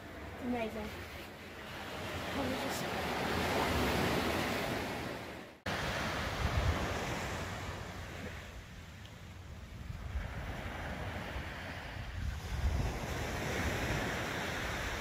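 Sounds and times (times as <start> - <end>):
ocean surf washing on beach: 0.0 - 15.0
wind buffeting microphone: 3.8 - 8.6, 9.5 - 15.0.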